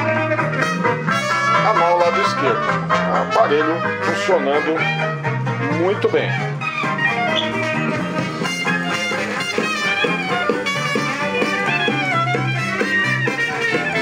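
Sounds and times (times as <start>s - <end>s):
music from a record player: 0.0s - 14.0s.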